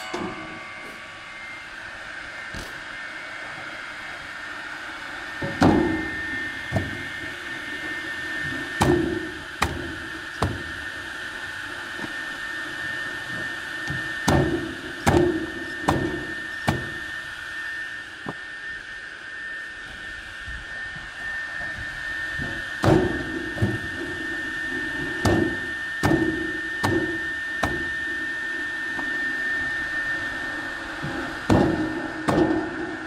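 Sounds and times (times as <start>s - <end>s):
electric firewood cutter humming: 0.0s - 33.0s
cutting wheel cutting logs: 2.4s - 3.0s, 5.4s - 17.2s, 22.4s - 28.1s, 31.0s - 33.0s.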